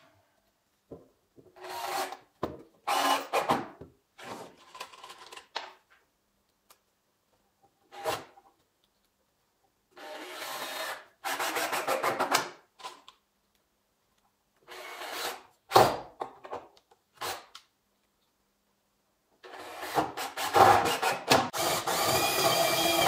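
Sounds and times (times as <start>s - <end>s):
cordless drill driving screws: 2.9s - 3.5s, 19.5s - 23.0s.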